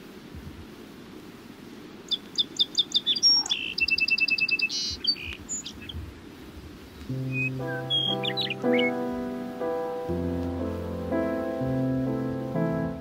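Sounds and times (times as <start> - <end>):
low steady hiss: 0.0 - 13.0
songbird chirping and trilling: 2.0 - 6.0, 7.0 - 13.0
music with held low note: 7.1 - 13.0.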